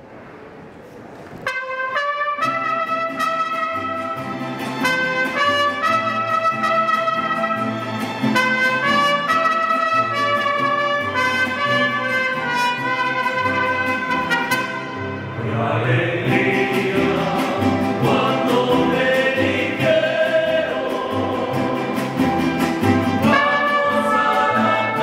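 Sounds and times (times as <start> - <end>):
trumpets playing melody: 1.4 - 15.4, 23.1 - 25.0.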